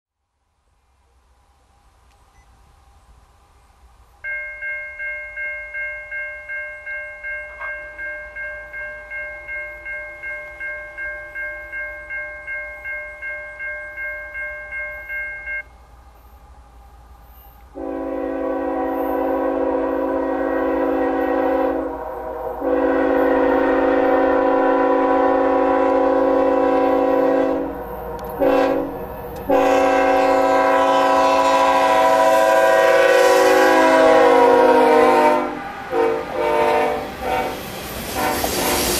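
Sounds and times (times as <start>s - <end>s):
grade-crossing bell ringing: 4.2s - 16.4s, 17.2s - 31.8s
locomotive passing: 4.2s - 38.9s
locomotive horn blasts: 17.7s - 37.6s, 38.2s - 38.9s.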